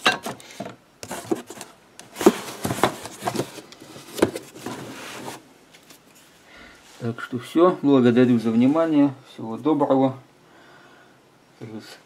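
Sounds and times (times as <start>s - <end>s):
cardboard rustling and scraping: 1.0s - 6.3s.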